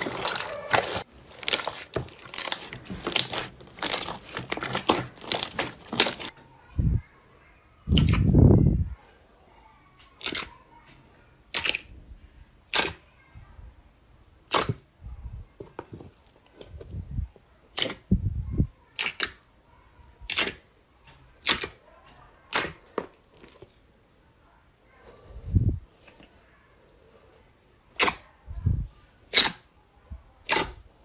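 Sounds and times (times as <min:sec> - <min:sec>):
slime squelching: 0:00.0 - 0:06.4, 0:10.2 - 0:10.5, 0:11.5 - 0:11.9, 0:14.4 - 0:14.8, 0:21.4 - 0:21.8, 0:30.4 - 0:30.8.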